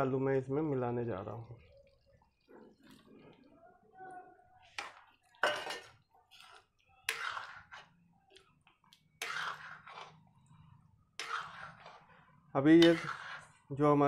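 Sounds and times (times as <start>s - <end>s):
metal spoon scraping a pan: 4.6s - 14.0s.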